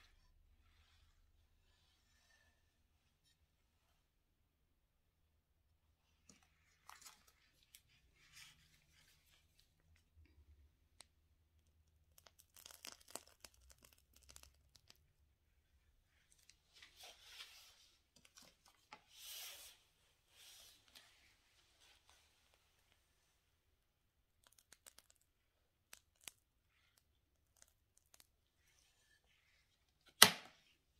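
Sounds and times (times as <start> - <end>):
plastic piping bag crinkling: 12.0 - 15.0, 24.4 - 28.3.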